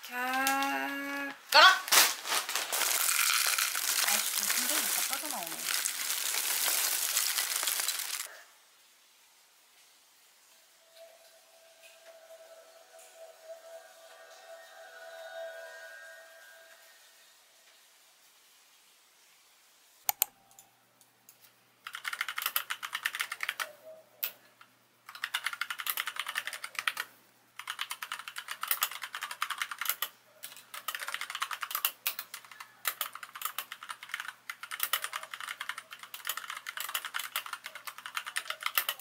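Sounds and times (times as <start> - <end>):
sharp clicks: 20.1 - 20.6.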